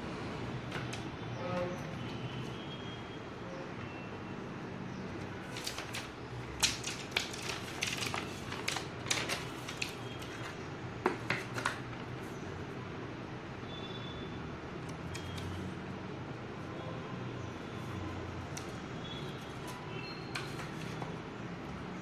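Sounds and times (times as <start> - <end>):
plastic wrapping crinkling and clicking: 5.5 - 10.6.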